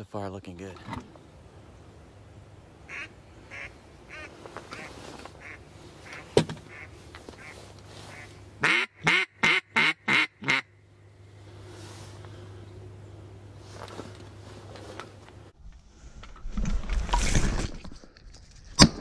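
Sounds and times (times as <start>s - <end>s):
duck quacking: 2.9s - 10.7s.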